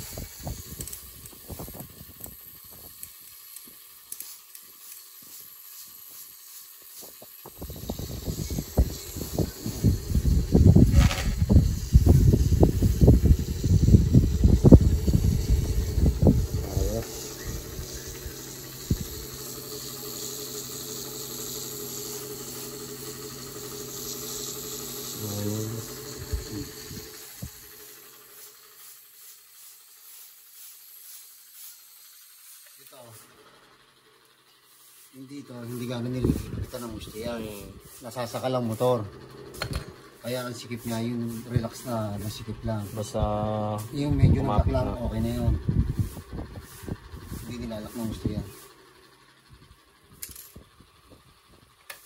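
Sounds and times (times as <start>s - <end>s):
tattoo machine motor hum: 0.0s - 52.0s
hands handling tattoo machine: 0.6s - 5.8s, 50.2s - 50.6s.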